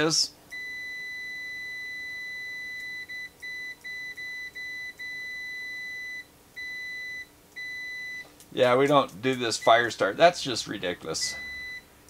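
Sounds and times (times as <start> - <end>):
multimeter continuity beep: 0.5 - 8.3, 9.5 - 10.1, 11.2 - 11.9.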